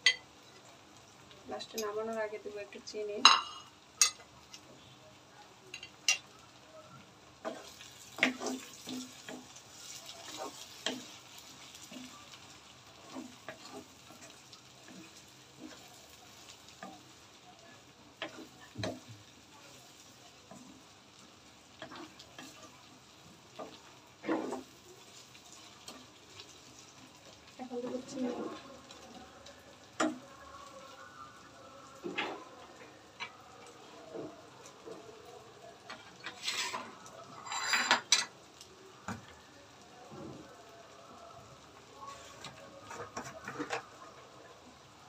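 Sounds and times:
faint sizzle: 0.0s - 45.0s
wooden spoon scraping pan: 36.0s - 38.0s.

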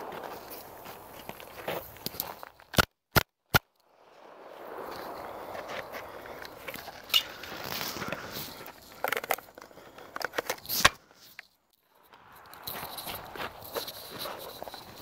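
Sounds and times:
footsteps on gravel: 0.0s - 2.7s, 4.0s - 11.2s, 12.0s - 15.0s
sharp loud crack: 2.8s - 8.7s
gun handling clicks: 9.0s - 11.0s.

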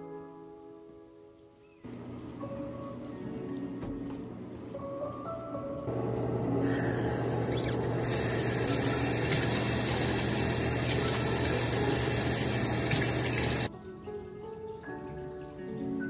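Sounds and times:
water running into sink: 6.9s - 13.7s.

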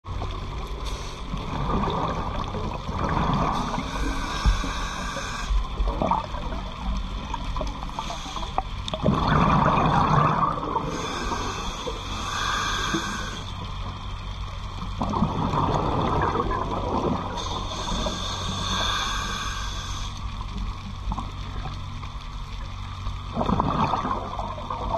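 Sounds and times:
regulator hissing inhales: 0.8s - 1.4s, 3.5s - 5.7s, 7.8s - 8.8s, 10.8s - 13.6s, 17.4s - 20.3s
exhaled bubbles bursting: 1.4s - 3.9s, 5.8s - 7.4s, 8.9s - 11.0s, 15.0s - 17.4s, 23.3s - 24.9s.

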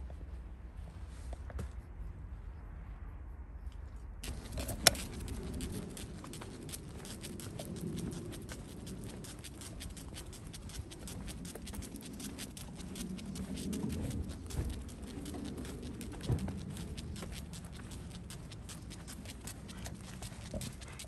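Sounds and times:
dog paws pattering on pavement: 4.2s - 21.0s
footsteps: 4.2s - 21.0s.

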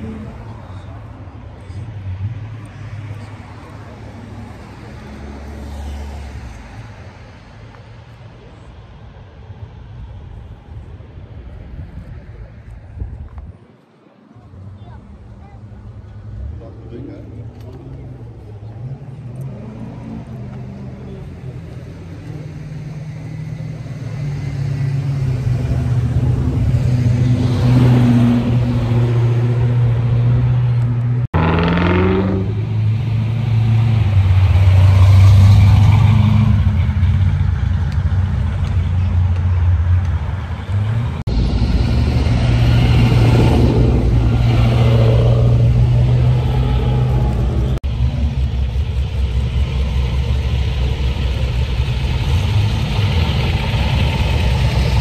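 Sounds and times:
car engines rumbling: 0.0s - 55.0s
engine revving: 22.5s - 55.0s.

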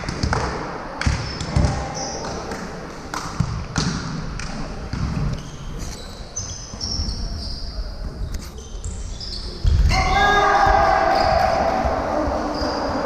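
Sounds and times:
volleyballs slapping and thudding: 0.0s - 5.4s.

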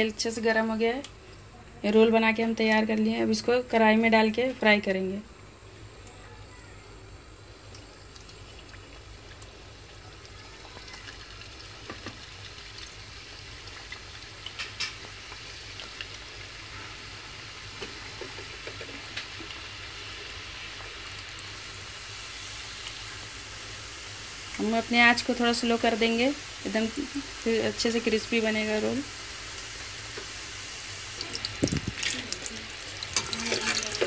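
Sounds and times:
food deep-frying in oil: 2.0s - 34.0s
oil crackles: 7.6s - 16.7s, 17.6s - 21.7s, 28.9s - 34.0s.

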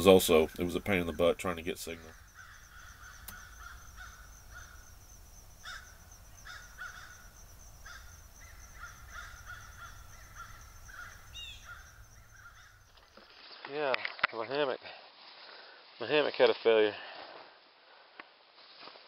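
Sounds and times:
birds calling in short notes: 5.6s - 13.0s.

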